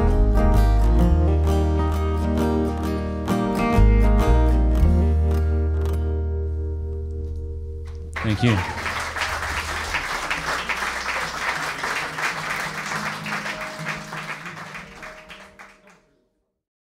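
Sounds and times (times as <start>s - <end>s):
audience applauding: 7.9s - 16.2s.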